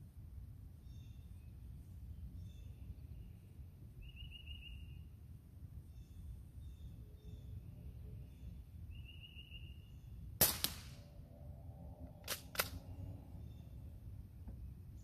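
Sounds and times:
pellet rifle shot: 10.4 - 11.1.

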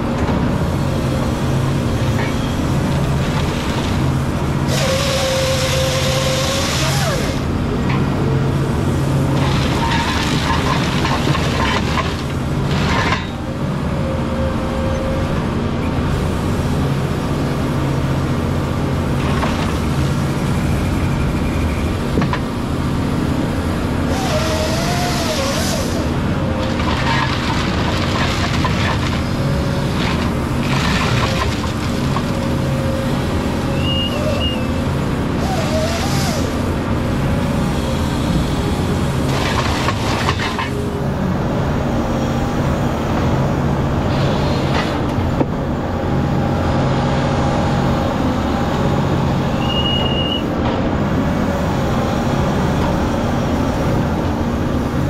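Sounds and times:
diesel engine running: 0.0 - 55.0
hydraulic whine: 4.7 - 7.5, 24.1 - 26.3, 32.6 - 36.8, 49.2 - 50.6.

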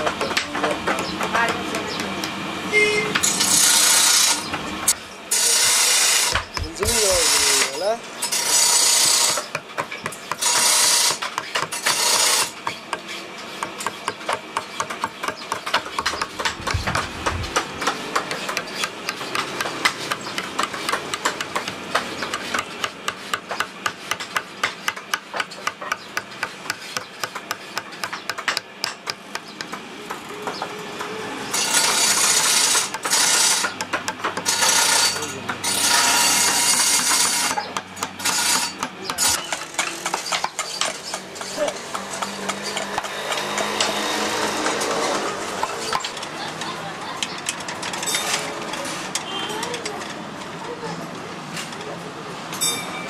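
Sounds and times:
mallet tapping chisel: 8.6 - 30.6, 31.7 - 44.8.

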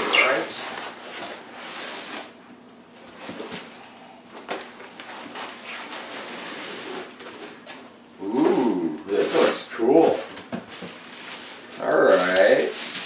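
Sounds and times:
plastic rustling: 9.1 - 13.0.

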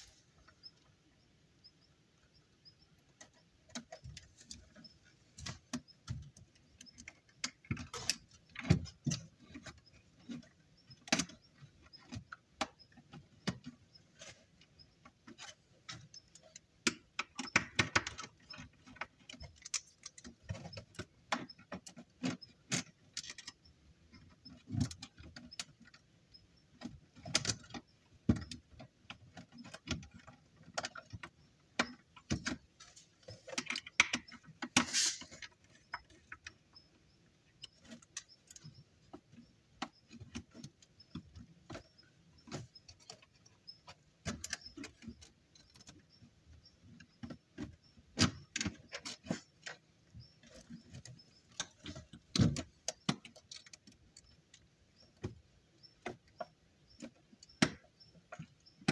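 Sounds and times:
hands handling small parts: 29.4 - 36.8
scrape in plastic enclosure: 34.7 - 35.6.

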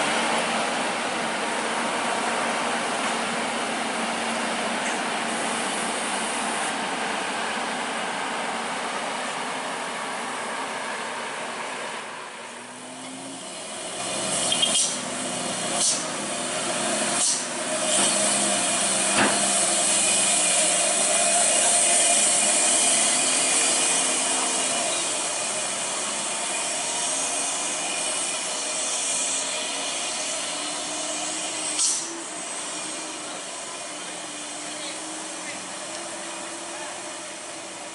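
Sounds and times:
steady rushing hiss: 0.0 - 10.7, 13.4 - 37.9
diesel engines labouring: 0.0 - 37.9
short hiss bursts: 31.1 - 32.2.

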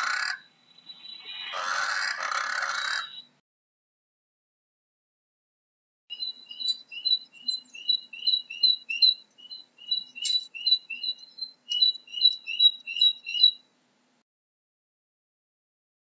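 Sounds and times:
bird chirping: 0.0 - 3.4, 6.1 - 13.7.

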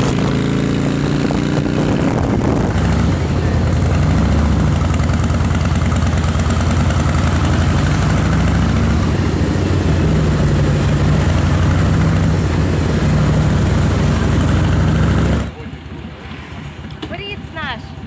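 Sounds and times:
wind rushing over microphone: 0.0 - 4.6
motorcycle engine running: 0.0 - 16.2.

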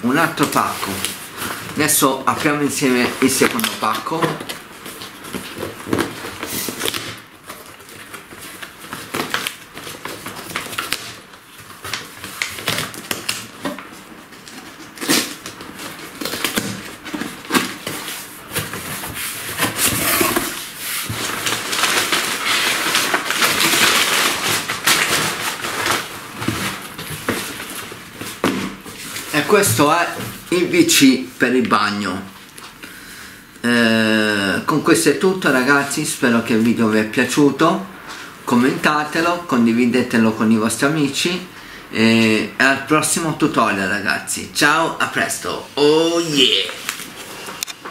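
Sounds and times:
cardboard flaps scraping: 0.3 - 30.5
packing tape peeling and tearing: 3.1 - 28.5.

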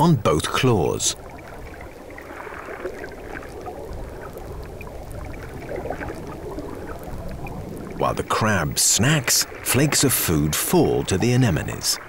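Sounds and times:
low underwater rush: 0.0 - 12.0.

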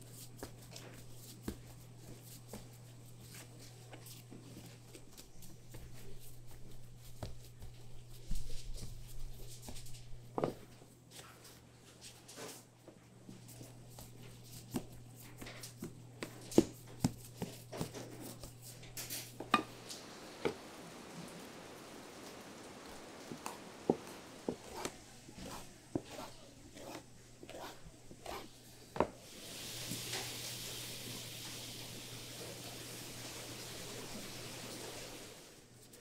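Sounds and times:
steady low hum: 12.9 - 29.2
hiss: 29.2 - 35.6.

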